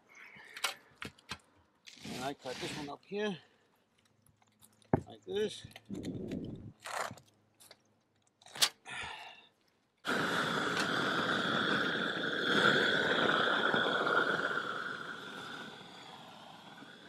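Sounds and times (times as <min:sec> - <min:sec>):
propane torch hissing: 0:02.0 - 0:03.0, 0:10.0 - 0:17.0.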